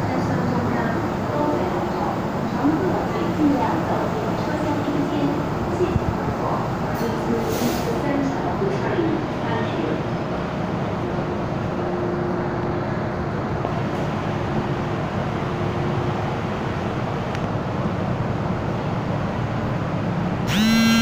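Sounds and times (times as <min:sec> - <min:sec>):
train humming: 0:00.0 - 0:21.0
door warning buzzer: 0:20.5 - 0:21.0.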